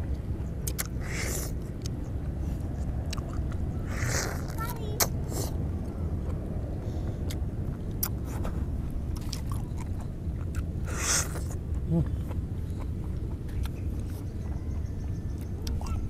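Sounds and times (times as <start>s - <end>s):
low rumble: 0.0s - 16.0s
wet chewing and smacking: 0.0s - 16.0s
loud sucking slurp: 3.9s - 4.6s.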